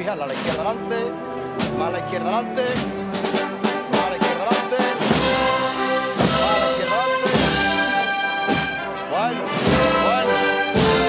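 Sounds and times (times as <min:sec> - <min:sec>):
brass band playing a march: 0:00.0 - 0:11.0
sharp drum strokes: 0:02.7 - 0:08.9.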